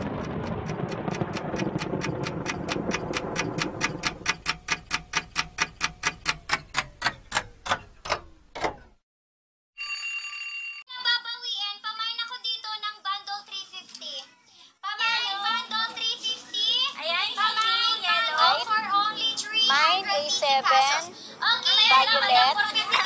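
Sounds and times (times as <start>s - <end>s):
rushing rain-like noise: 0.0s - 4.5s
clock ticking: 0.0s - 8.3s
singing with music: 14.7s - 23.0s.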